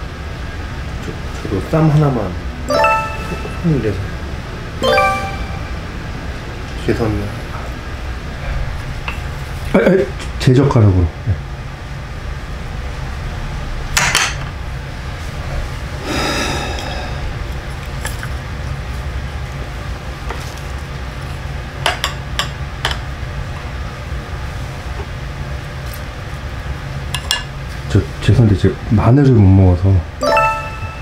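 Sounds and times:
steady low hum: 14.6s - 20.2s.

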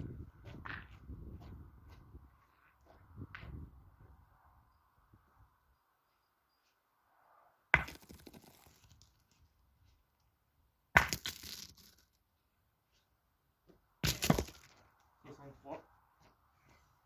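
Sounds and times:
boule skidding on gravel: 7.8s - 9.2s
boule impacts: 14.0s - 14.9s.

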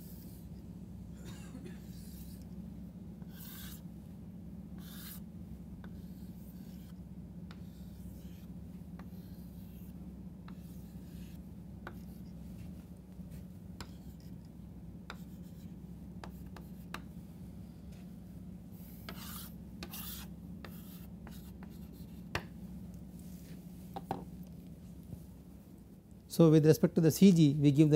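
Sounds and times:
chalk scraping on chalkboard: 1.8s - 2.4s, 3.2s - 3.8s, 4.8s - 5.2s, 5.8s - 12.7s, 15.1s - 15.7s, 18.8s - 22.3s
chalk tapping on board: 9.0s - 12.2s, 13.8s - 14.3s, 15.1s - 15.6s, 16.2s - 17.1s, 18.9s - 22.6s.

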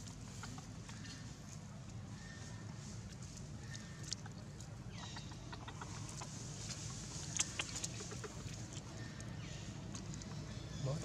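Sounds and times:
monkey chewing crunches: 7.3s - 9.2s.

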